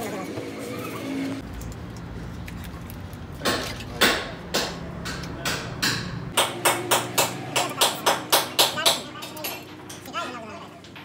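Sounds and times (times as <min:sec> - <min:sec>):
sharp knocks: 0:03.4 - 0:10.0.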